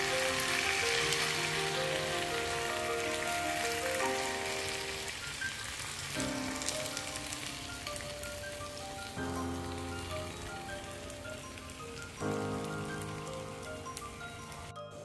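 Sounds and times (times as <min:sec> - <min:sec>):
background music: 0:00.0 - 0:15.0
food sizzling in frying pan: 0:00.0 - 0:15.0.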